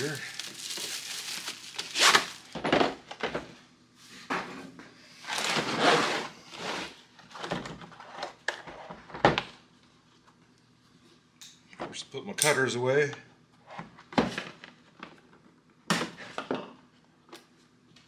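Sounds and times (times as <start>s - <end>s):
plastic packaging rustling: 0.0s - 2.7s.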